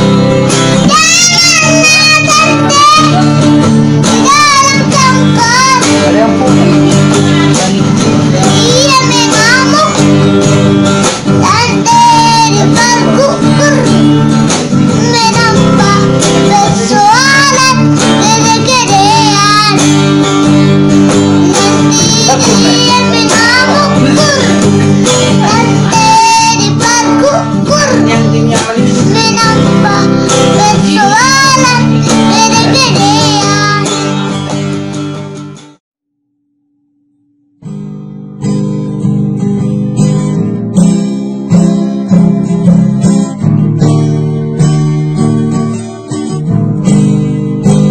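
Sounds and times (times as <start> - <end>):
acoustic guitar strumming: 0.0 - 35.8, 36.4 - 47.9
boy singing: 0.5 - 10.6, 11.3 - 34.4.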